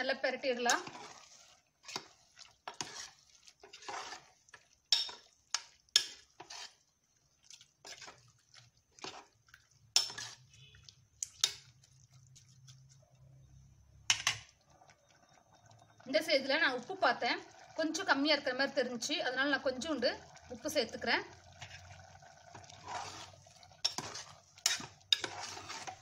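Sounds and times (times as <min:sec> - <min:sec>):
spoon scraping metal pot: 0:00.4 - 0:14.6, 0:21.5 - 0:26.0.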